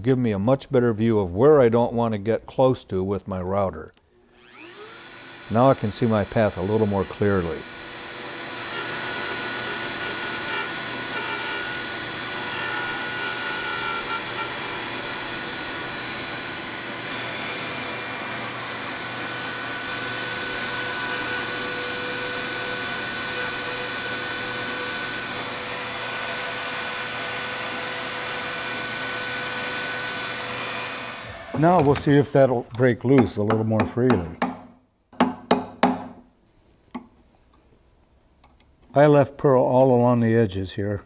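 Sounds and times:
rotary tool whining: 0:04.3 - 0:32.0
shop vacuum sucking: 0:04.3 - 0:32.3.

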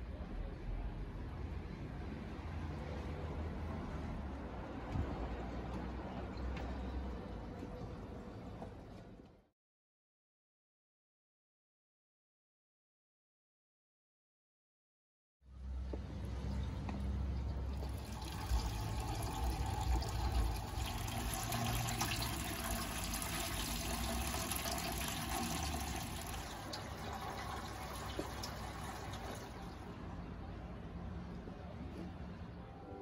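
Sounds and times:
water splashing into a basin: 0:17.8 - 0:29.8.

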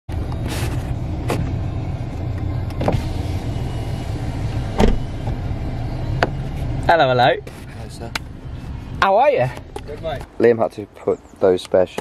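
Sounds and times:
car engine rumble from inside cabin: 0:00.1 - 0:10.6.

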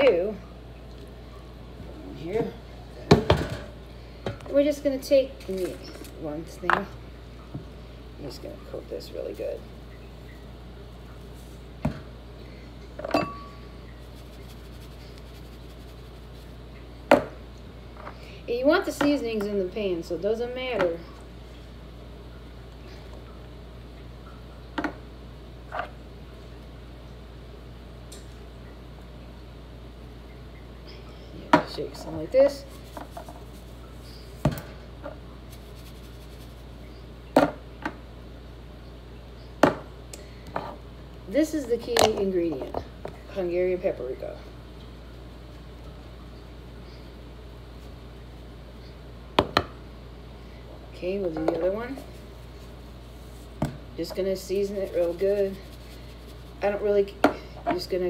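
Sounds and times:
steady low hum: 0:00.0 - 0:58.0
spice container shaken: 0:14.0 - 0:16.6, 0:32.6 - 0:33.8, 0:35.5 - 0:36.8, 0:54.4 - 0:56.6.

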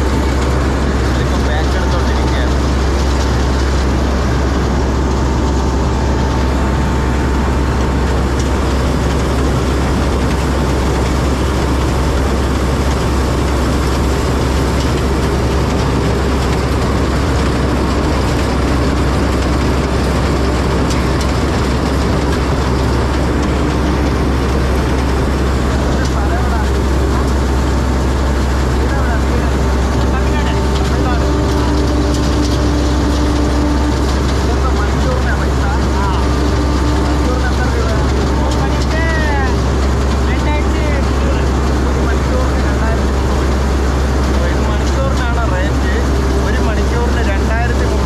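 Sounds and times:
combine harvester engine drone: 0:00.0 - 0:48.0.

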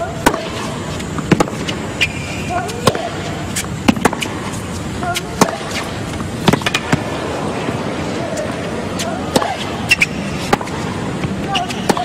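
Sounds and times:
crowd and stadium noise: 0:00.0 - 0:12.0
rackets striking tennis ball: 0:00.0 - 0:12.0
ball bouncing: 0:01.2 - 0:01.8, 0:03.8 - 0:04.4, 0:06.4 - 0:07.1.

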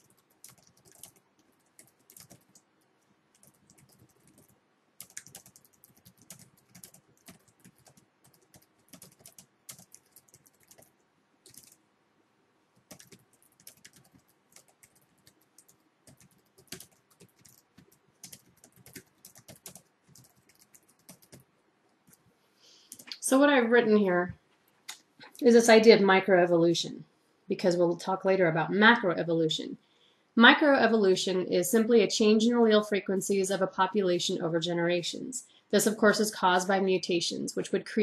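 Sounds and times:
faint keyboard typing: 0:00.0 - 0:11.8, 0:12.8 - 0:23.2.

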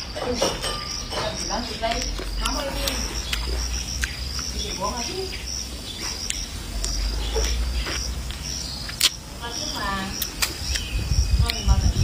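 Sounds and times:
insects chirping in trills: 0:00.0 - 0:12.0
person chewing and eating: 0:01.4 - 0:04.9, 0:06.0 - 0:09.3, 0:10.2 - 0:11.6.

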